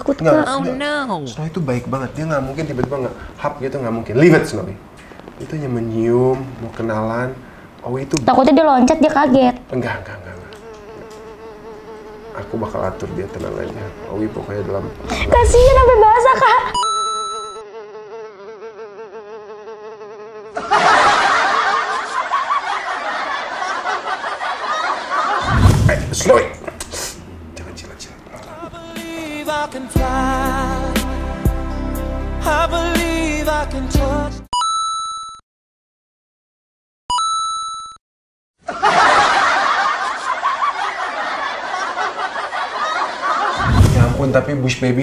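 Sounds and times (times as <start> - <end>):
cartoon fly buzzing: 10.4 - 20.7.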